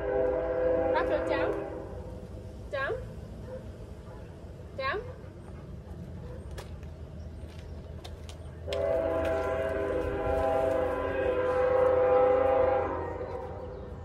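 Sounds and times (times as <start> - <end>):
train horn blast: 0.0 - 2.1, 8.7 - 13.9.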